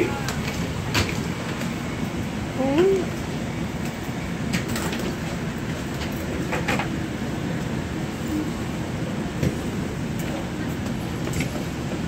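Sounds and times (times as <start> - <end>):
train car rumbling on track: 0.0 - 12.0.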